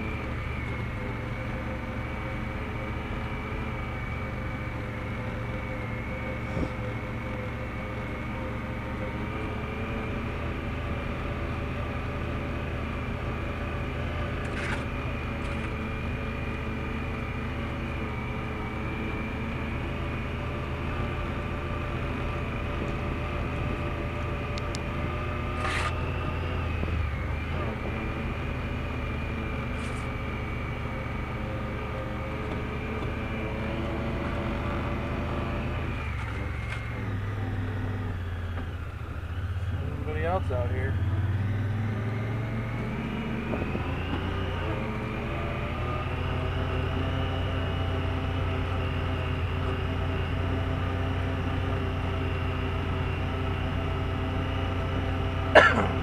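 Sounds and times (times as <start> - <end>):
steady high whine: 0.0 - 56.0
vehicle engine running: 0.0 - 56.0.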